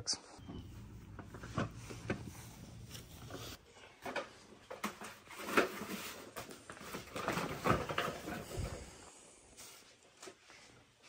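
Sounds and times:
rustling of handled items: 0:00.4 - 0:11.0.

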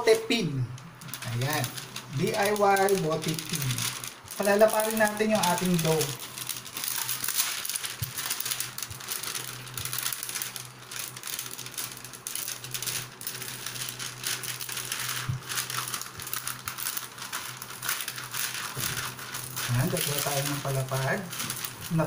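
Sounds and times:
plastic sheet crinkling: 0:00.0 - 0:22.0.

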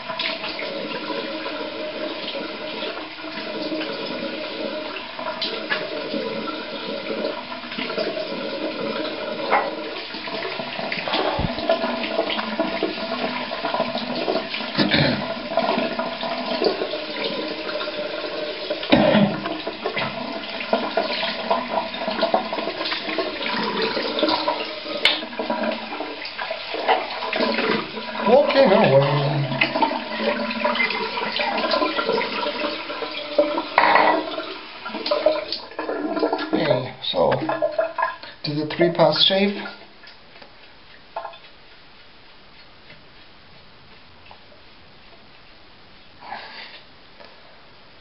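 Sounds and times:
tap water running into sink: 0:00.0 - 0:41.6
splashes and knocks from rinsing: 0:04.9 - 0:41.6.

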